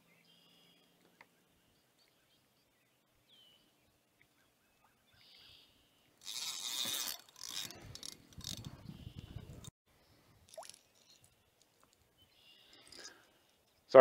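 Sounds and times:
faint bird chirps: 0:00.0 - 0:06.1, 0:10.8 - 0:13.2
fishing reel scraping and clicking: 0:06.2 - 0:09.7.

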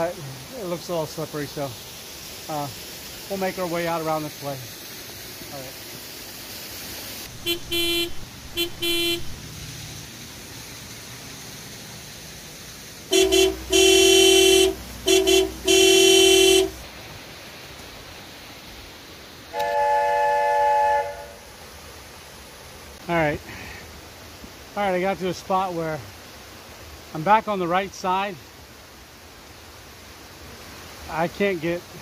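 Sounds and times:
horn honking: 0:07.3 - 0:09.4, 0:13.1 - 0:16.8, 0:19.5 - 0:21.5.

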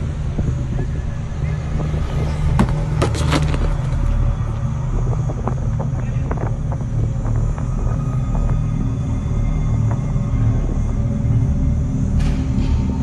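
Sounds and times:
low rumble: 0:00.0 - 0:13.0
sharp knocks and clatters: 0:02.5 - 0:04.2.

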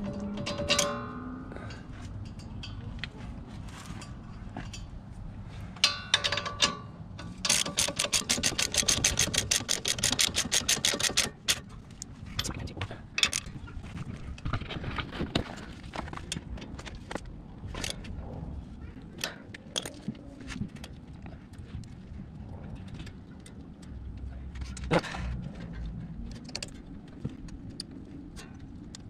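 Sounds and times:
tool clicks and knocks: 0:05.8 - 0:11.7
socket ratchet clicking rapidly: 0:07.4 - 0:11.7.

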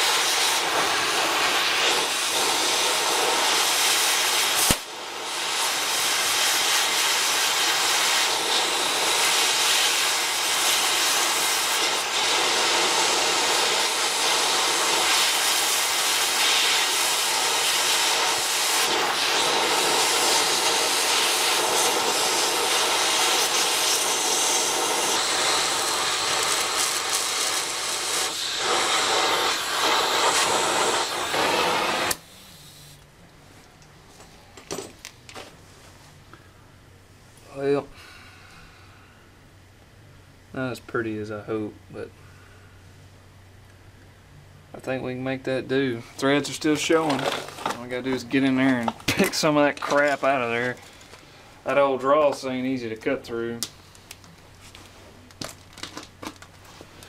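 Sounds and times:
cutting torch hissing: 0:00.0 - 0:33.0
sharp pop: 0:04.6 - 0:04.9.

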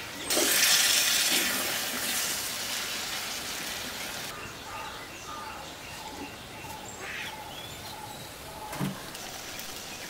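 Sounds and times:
curry hissing in pot: 0:00.3 - 0:04.3
birds chirping: 0:04.3 - 0:10.0.

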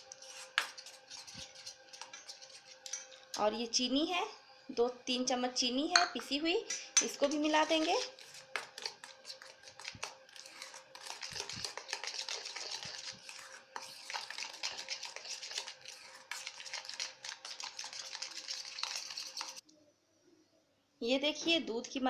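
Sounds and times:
spoon scraping a metal bowl: 0:00.0 - 0:03.3, 0:06.7 - 0:19.6.

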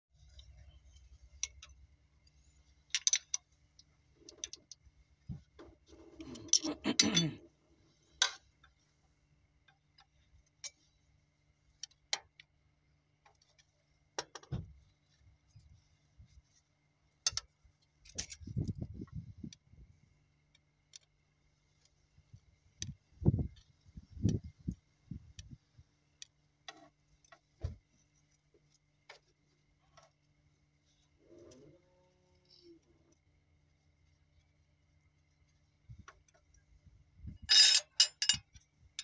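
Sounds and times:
wrench clinking on metal parts: 0:02.9 - 0:03.5, 0:06.2 - 0:07.4, 0:37.3 - 0:38.6.

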